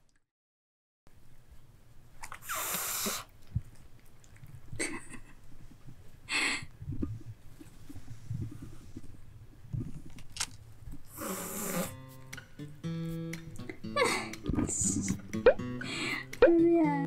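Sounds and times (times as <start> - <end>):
kitten breathy bursts of air: 2.4 - 3.3, 11.1 - 12.0.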